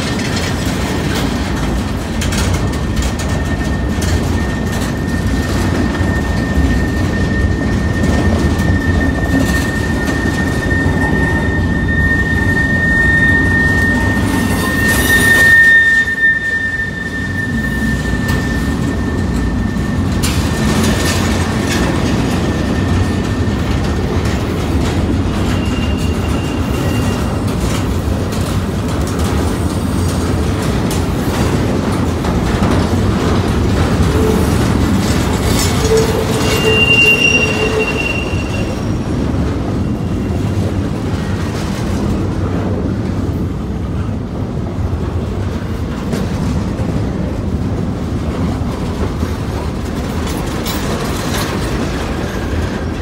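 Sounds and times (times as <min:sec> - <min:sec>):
steel wheels rumbling on rail: 0:00.0 - 0:53.0
high wheel squeals: 0:02.3 - 0:27.9, 0:33.7 - 0:41.2.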